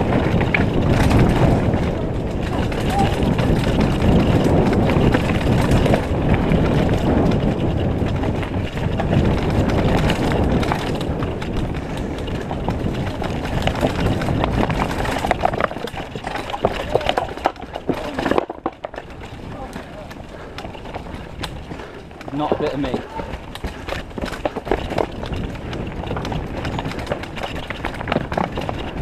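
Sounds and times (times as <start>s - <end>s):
bike rattling and knocking: 0.0s - 29.0s
bike tyres rumbling: 0.0s - 29.0s
wind on microphone: 0.0s - 29.0s.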